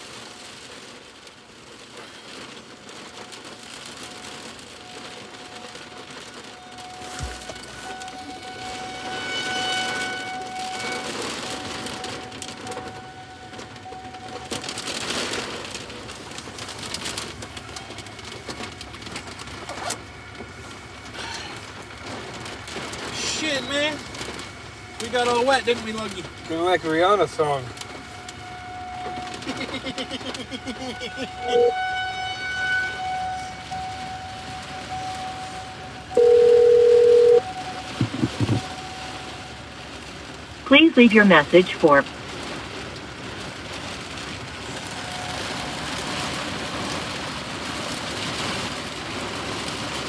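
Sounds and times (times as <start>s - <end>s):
heavy rain on truck roof: 0.0s - 50.0s
telephone ringback tone: 36.1s - 37.5s.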